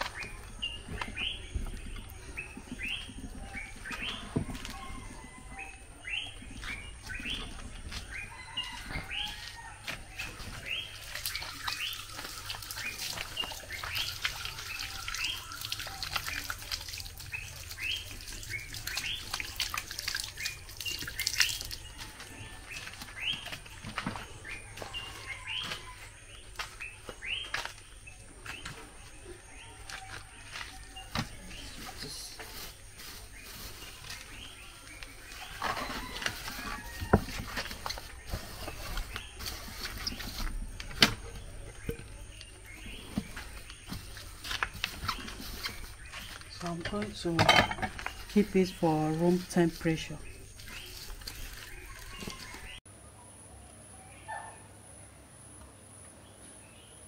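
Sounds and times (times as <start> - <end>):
water running from tap: 11.0 - 21.9.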